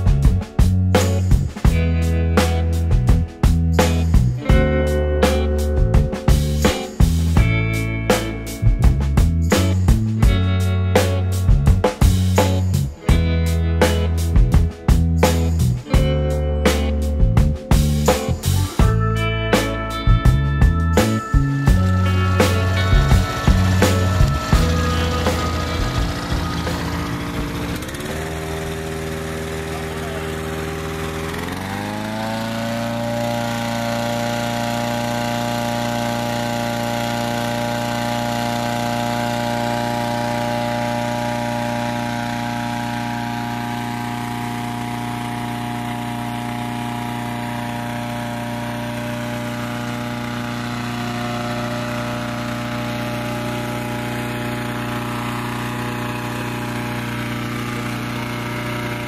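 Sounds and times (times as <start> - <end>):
balloon inflator fan engine running: 21.2 - 59.0.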